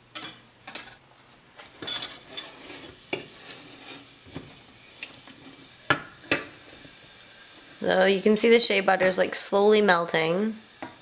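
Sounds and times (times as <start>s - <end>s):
whisk clinking and scraping metal pan: 1.7s - 4.4s.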